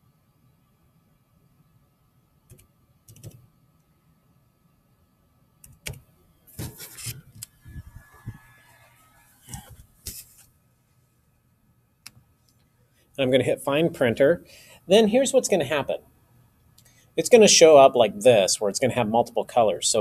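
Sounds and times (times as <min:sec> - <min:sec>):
keyboard keys clicking: 0:02.5 - 0:03.4.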